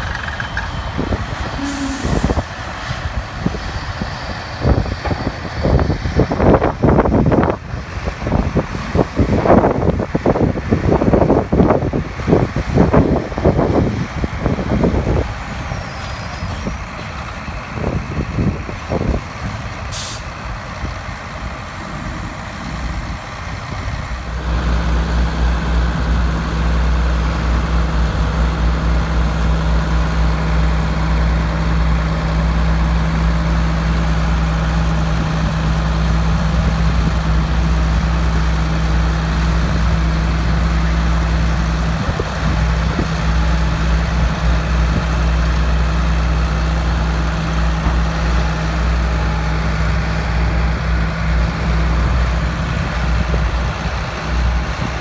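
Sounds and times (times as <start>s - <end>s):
deep engine drone: 0.0s - 55.0s
heavy diesel engines running: 0.0s - 55.0s
hiss of blown chopped grass: 1.6s - 2.6s, 19.9s - 20.4s.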